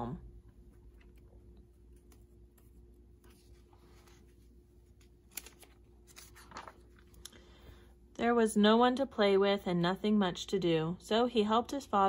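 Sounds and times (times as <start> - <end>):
faint steady hum: 0.0 - 12.0
book page turning: 1.0 - 7.3.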